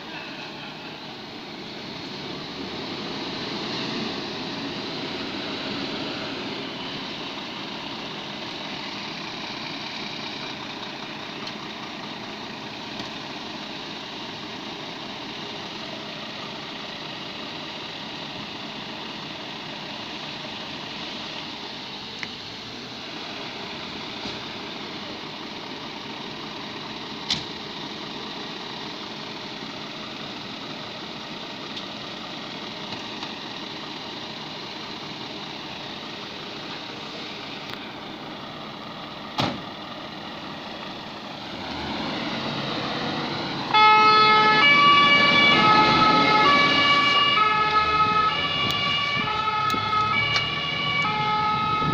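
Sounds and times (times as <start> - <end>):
diesel engine running: 0.0 - 51.9
two-tone siren: 43.6 - 51.9.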